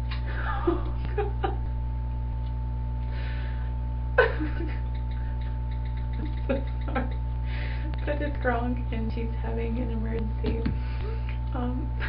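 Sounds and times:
faint steady whine: 0.0 - 12.0
low electrical hum: 0.0 - 12.0
woman breathing quietly: 3.0 - 3.8, 7.4 - 8.0.

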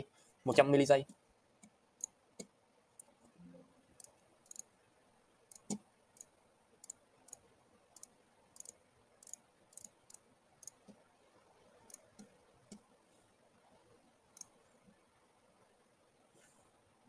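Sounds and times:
computer mouse clicking: 4.0 - 4.7, 5.5 - 7.4, 8.0 - 11.0, 11.8 - 12.8.

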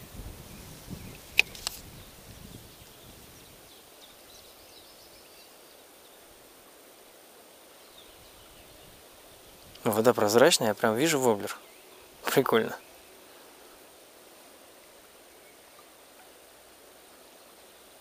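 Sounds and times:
faint bird chirps: 0.4 - 6.4, 7.8 - 9.0
fishing rod and reel rustling: 1.1 - 2.1
reel clicks: 1.2 - 1.9.

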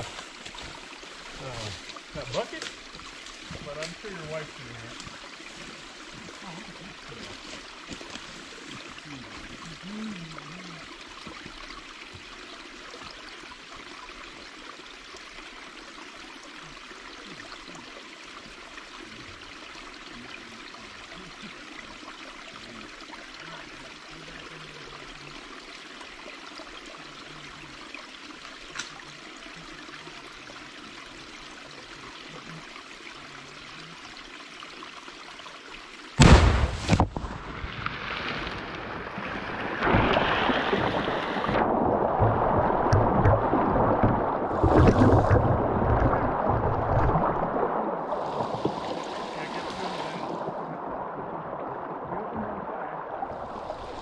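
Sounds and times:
creek water trickling: 0.0 - 54.0.

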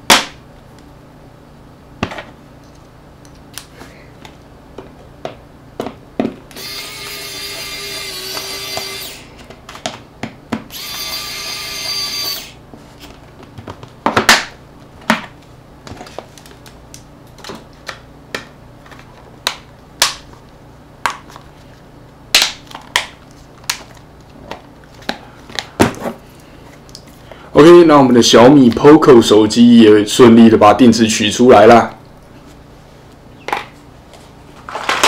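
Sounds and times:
electric screwdriver running: 6.5 - 9.3, 10.7 - 12.6.

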